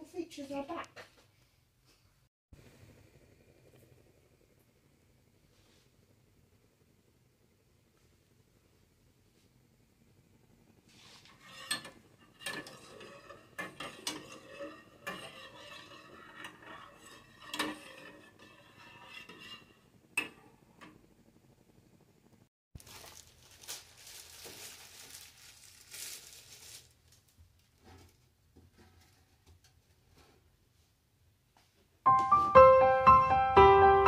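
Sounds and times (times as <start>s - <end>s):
soft steady hiss: 0.0s - 11.3s
spoon scraping and clinking a saucepan: 11.2s - 21.0s.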